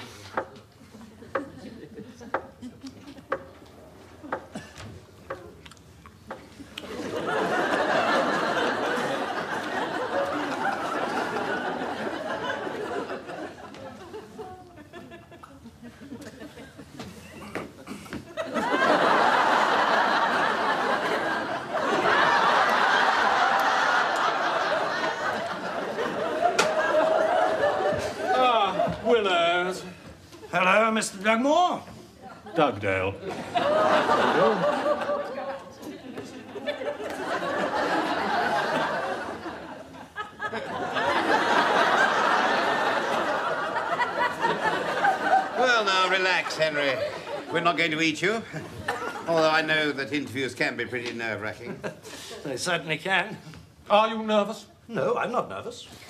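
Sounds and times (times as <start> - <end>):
studio audience laughing: 0.8 - 3.5, 6.8 - 29.1, 32.2 - 47.8, 48.4 - 49.6.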